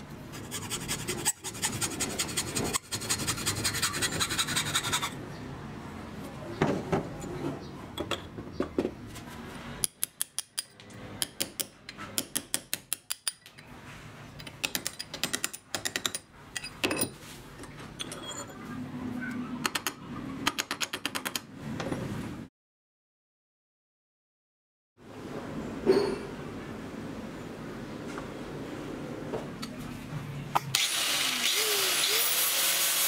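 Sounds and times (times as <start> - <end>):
sharp metal clicks and taps: 9.8 - 13.6, 19.6 - 21.5.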